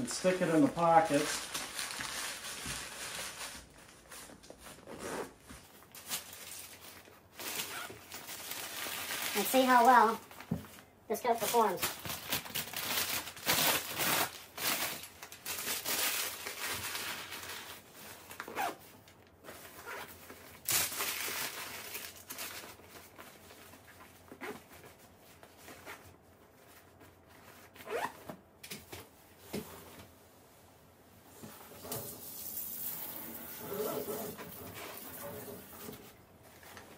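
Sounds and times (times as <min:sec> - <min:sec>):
jacket fabric rustling: 0:00.0 - 0:18.8, 0:21.8 - 0:28.3
paper crinkling: 0:00.1 - 0:18.5
zippers pulled: 0:27.8 - 0:28.2.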